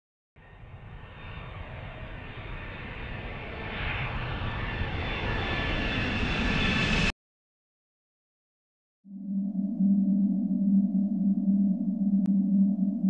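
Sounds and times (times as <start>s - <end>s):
faint steady high tones: 9.1s - 13.0s.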